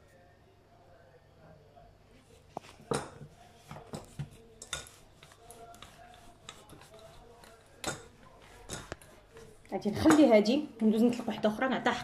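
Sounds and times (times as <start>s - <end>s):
dough and rolling pin tapping worktop: 2.8s - 10.4s.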